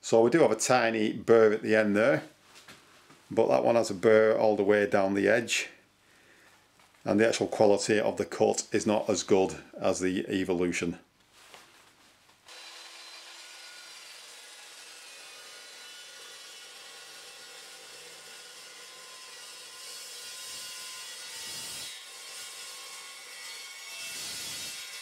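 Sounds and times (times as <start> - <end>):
chop saw cutting steel pipe: 12.5 - 25.0.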